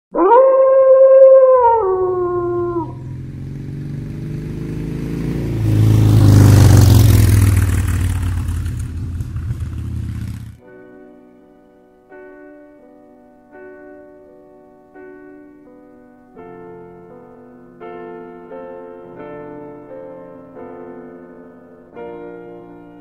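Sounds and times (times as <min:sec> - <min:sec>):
wolf howling: 0:00.1 - 0:03.3
motorcycle engine rumble: 0:01.6 - 0:10.6.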